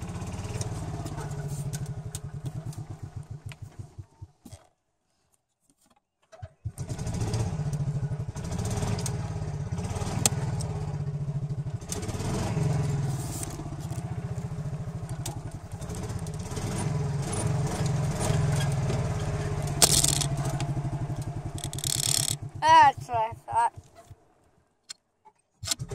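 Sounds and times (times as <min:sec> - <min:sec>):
golf cart engine running: 0:00.0 - 0:04.6, 0:06.6 - 0:24.6, 0:25.7 - 0:25.9.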